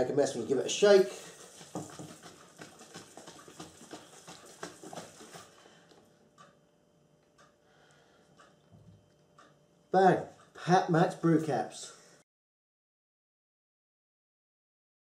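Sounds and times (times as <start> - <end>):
liquid sloshing in shaken bottle: 0.9 - 5.8.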